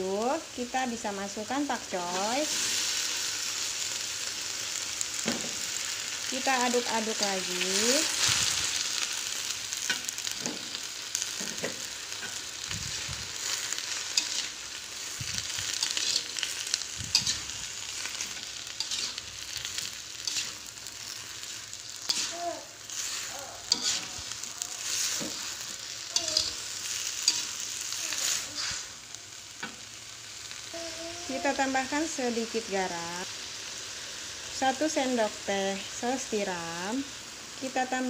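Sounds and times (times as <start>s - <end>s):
vegetables sizzling in a pan: 0.0s - 38.0s
metal spatula scraping a pan: 9.8s - 29.0s.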